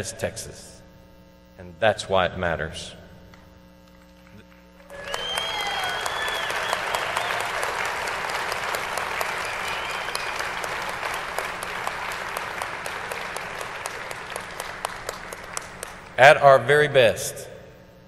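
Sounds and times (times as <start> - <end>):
audience applauding and cheering: 4.8 - 16.2.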